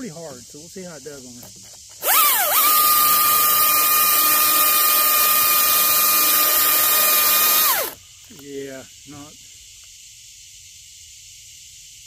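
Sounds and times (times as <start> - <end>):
chain hissing through wood: 1.2 - 10.4
battery chainsaw motor whine: 2.0 - 8.0.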